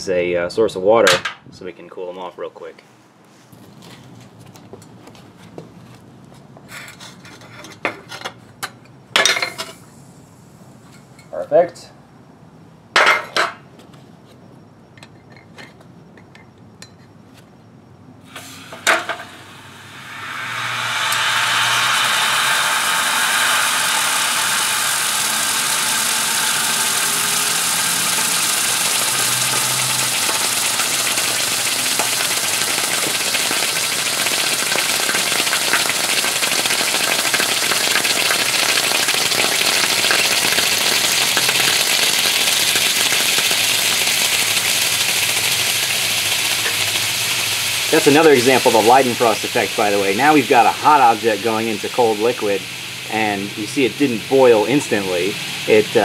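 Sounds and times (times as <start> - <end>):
hot metal fizzling in water: 18.3 - 56.0.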